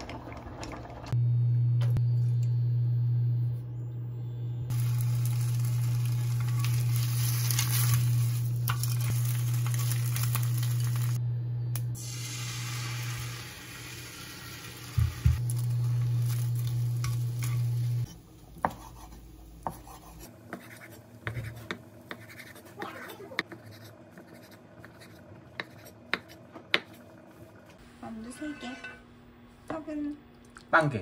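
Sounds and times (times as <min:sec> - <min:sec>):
low hum: 0:00.0 - 0:20.2
egg sizzling in a pan: 0:04.7 - 0:11.2, 0:12.0 - 0:18.1
spatula scraping a pan: 0:28.2 - 0:29.0.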